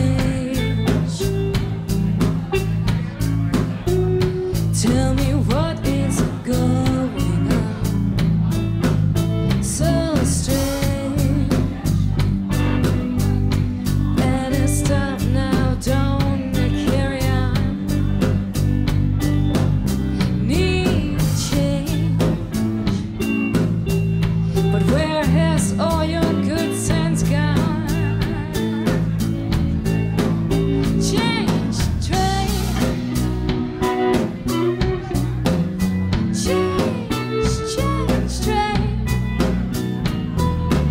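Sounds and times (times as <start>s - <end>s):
woman singing: 0.0s - 1.5s, 4.6s - 8.1s, 9.6s - 12.1s, 13.8s - 18.3s, 20.1s - 23.0s, 24.6s - 29.0s, 30.8s - 33.2s, 36.2s - 39.6s
drum kit beat: 0.0s - 40.9s
electric bass: 0.0s - 40.9s
electric guitar: 0.0s - 40.9s.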